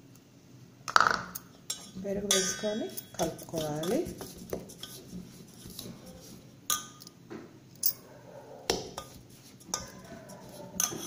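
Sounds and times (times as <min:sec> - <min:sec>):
spoon stirring in metal bowl: 0:01.4 - 0:07.1, 0:08.7 - 0:11.0
spoon clinking on bowl: 0:01.7 - 0:04.1, 0:06.7 - 0:07.0, 0:10.8 - 0:11.0.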